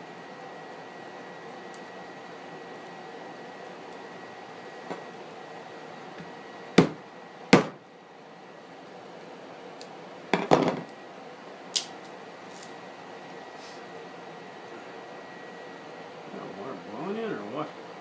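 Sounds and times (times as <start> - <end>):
camp stove fan whirring: 0.0 - 18.0
knocks on a tabletop: 10.3 - 10.9.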